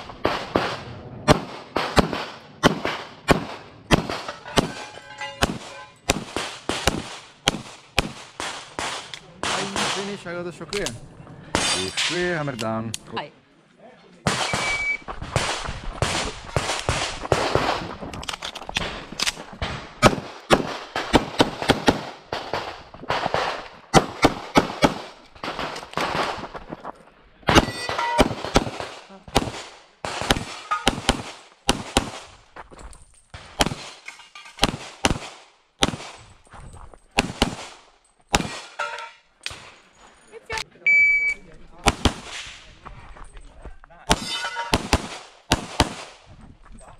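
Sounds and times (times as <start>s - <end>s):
pistol shots: 0.2s - 10.2s, 19.6s - 26.4s, 27.5s - 32.3s, 33.4s - 34.0s, 34.6s - 36.2s, 37.2s - 38.8s, 44.1s - 46.2s.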